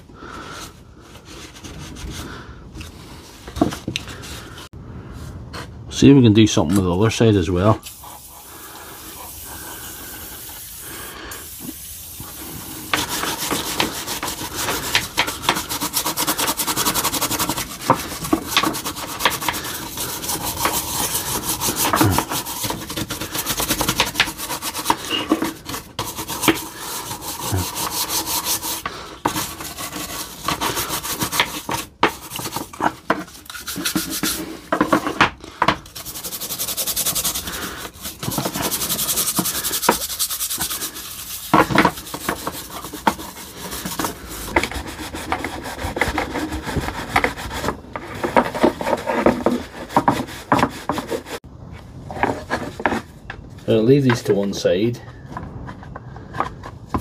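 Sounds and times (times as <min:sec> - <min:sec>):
brush scrubbing plastic: 0:07.6 - 0:51.4.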